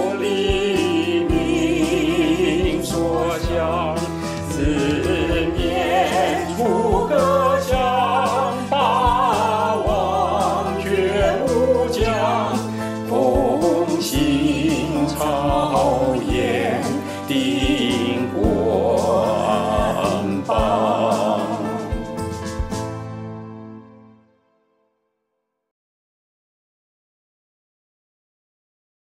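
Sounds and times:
person singing with vibrato: 0.0s - 22.3s
midi backing track: 0.0s - 23.9s.

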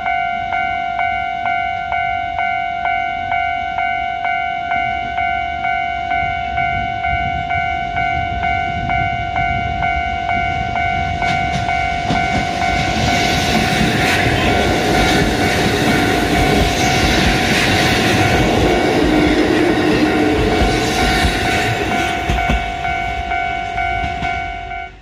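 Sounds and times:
level-crossing bell ringing: 0.0s - 25.0s
train rumbling past: 0.0s - 25.0s
train wheel clicks: 11.0s - 25.0s.

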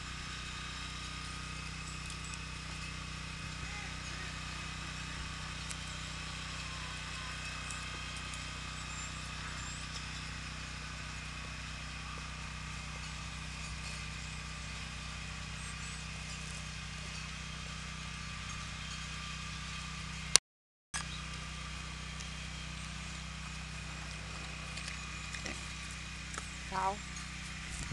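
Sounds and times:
steady low hum with hiss: 21.0s - 27.9s.

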